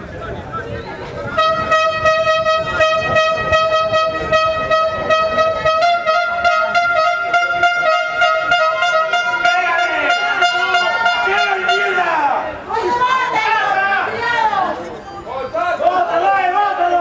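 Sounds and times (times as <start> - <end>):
steady horn-like tone: 1.3 - 12.4.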